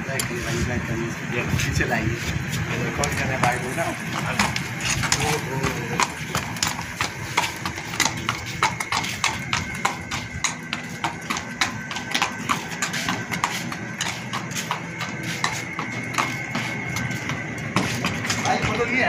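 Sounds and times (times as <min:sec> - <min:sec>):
horse hooves clip-clopping: 0:02.2 - 0:19.0
steady high tone: 0:02.7 - 0:06.4.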